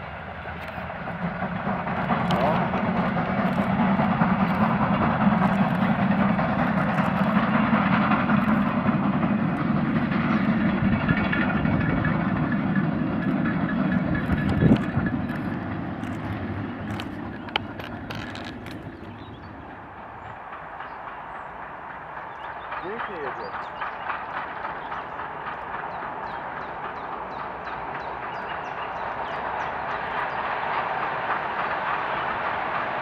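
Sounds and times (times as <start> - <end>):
steam locomotive exhaust: 0.0 - 33.0
rolling wagons: 13.4 - 21.0.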